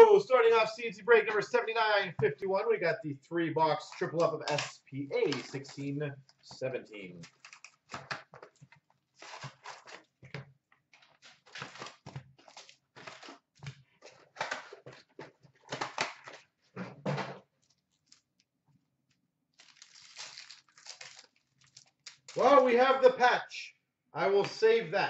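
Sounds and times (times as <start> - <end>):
card packs rustling: 7.2 - 16.5, 19.6 - 22.8.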